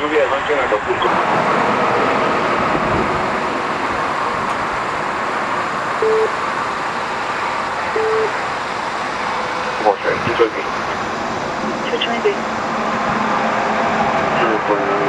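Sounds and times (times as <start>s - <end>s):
road traffic noise: 0.0s - 15.0s
short beeps: 6.0s - 6.4s, 7.9s - 8.3s.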